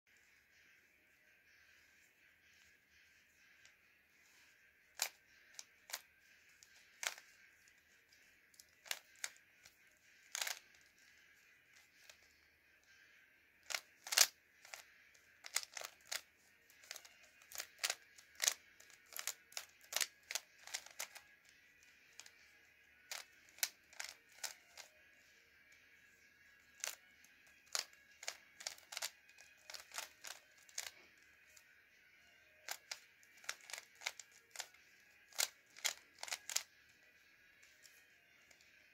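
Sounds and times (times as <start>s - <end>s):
puzzle cube clicking: 5.0s - 6.1s, 7.0s - 7.3s, 8.6s - 9.4s, 10.2s - 10.9s, 13.6s - 14.8s, 15.4s - 21.3s, 23.1s - 24.9s, 26.7s - 31.0s, 32.6s - 36.7s.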